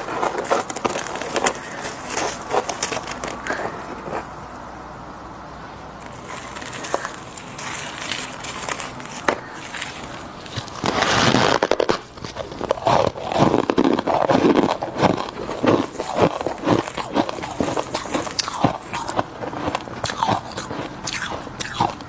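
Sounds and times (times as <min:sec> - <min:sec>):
person crunching and chewing ice: 0:00.0 - 0:04.4, 0:06.0 - 0:22.0
gloved hands crushing frost: 0:06.0 - 0:22.0.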